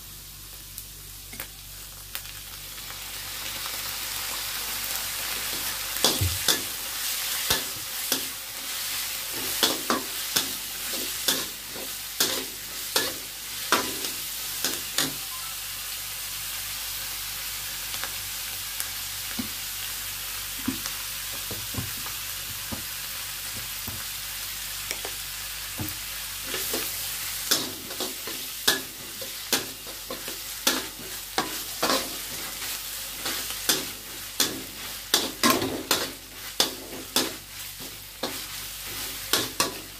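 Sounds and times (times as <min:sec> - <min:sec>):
vegetables sizzling in wok: 0:00.0 - 0:39.9.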